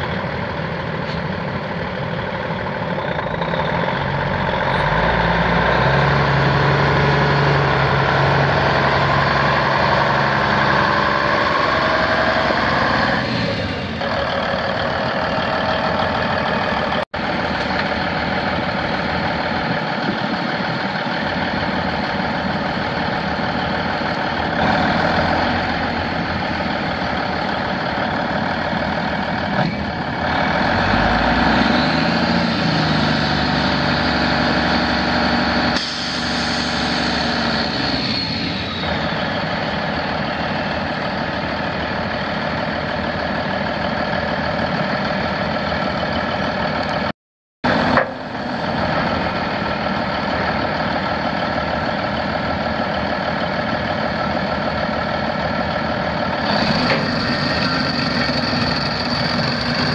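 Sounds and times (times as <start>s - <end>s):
diesel truck engine revving: 0.0s - 59.9s
high whine: 56.2s - 59.9s.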